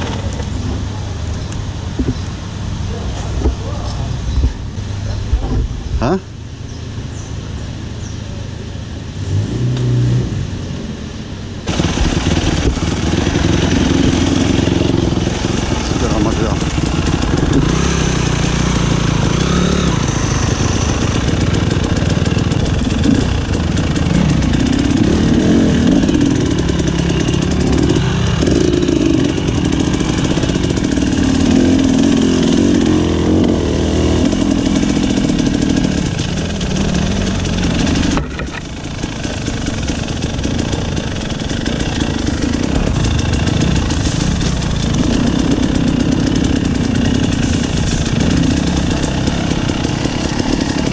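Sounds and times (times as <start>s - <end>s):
dirt bike engine revving: 11.7s - 50.9s.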